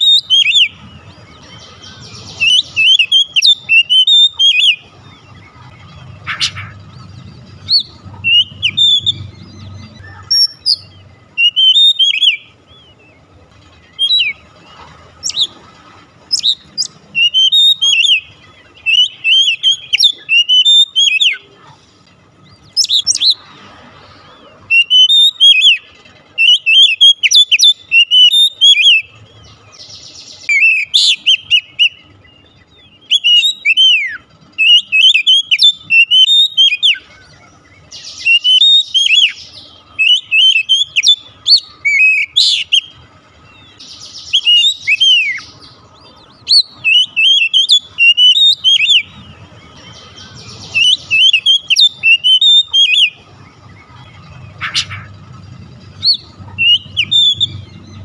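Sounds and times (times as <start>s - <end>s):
bird singing whistled phrases: 0.0s - 6.8s, 7.6s - 13.1s, 13.9s - 14.4s, 16.3s - 21.5s, 22.6s - 23.4s, 24.7s - 29.2s, 30.4s - 43.0s, 43.6s - 55.1s, 56.0s - 58.0s.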